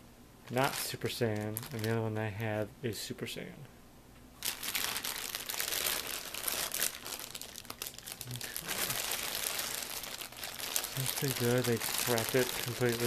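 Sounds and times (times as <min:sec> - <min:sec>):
plastic bag crinkling: 0:00.5 - 0:02.0, 0:04.4 - 0:13.0.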